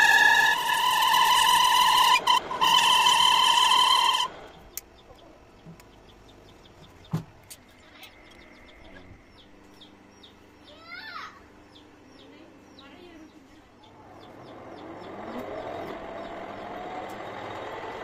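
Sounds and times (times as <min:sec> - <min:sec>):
metal lathe whining: 0:00.0 - 0:04.5.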